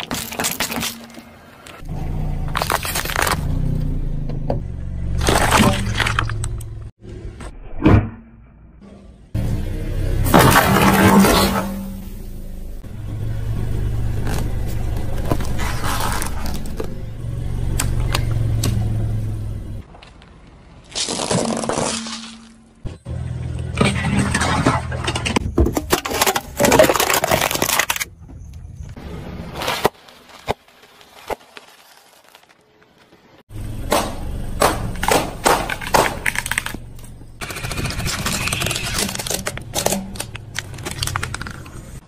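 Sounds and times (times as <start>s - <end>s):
plastic crunching under tyres: 0.0s - 1.8s, 2.5s - 3.6s, 14.0s - 17.1s, 19.8s - 23.0s, 23.6s - 42.0s
car running: 1.6s - 7.4s, 9.1s - 20.8s, 22.7s - 26.6s, 33.4s - 42.0s.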